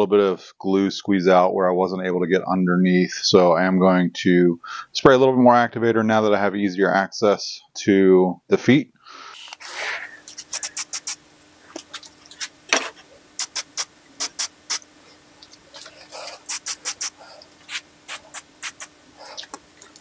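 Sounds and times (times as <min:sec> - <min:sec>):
faint steady hum: 0:00.0 - 0:20.0
spray bottle squirting: 0:09.4 - 0:11.2, 0:13.4 - 0:14.9, 0:15.8 - 0:20.0.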